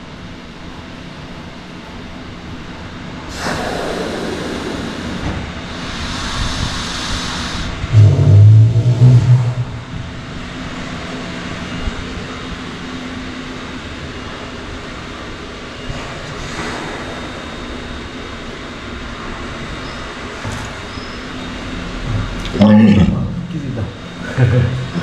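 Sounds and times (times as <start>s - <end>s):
loud low hum-like sound: 0.0s - 25.0s
walrus hissing inhale: 3.3s - 8.6s.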